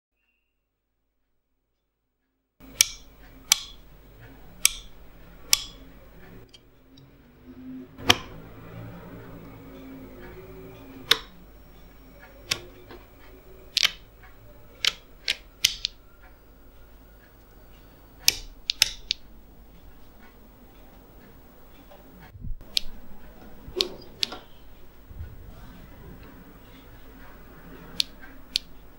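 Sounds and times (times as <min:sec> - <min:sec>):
faint steady hum: 0:02.6 - 0:28.9
geiger counter clicking: 0:02.6 - 0:28.9.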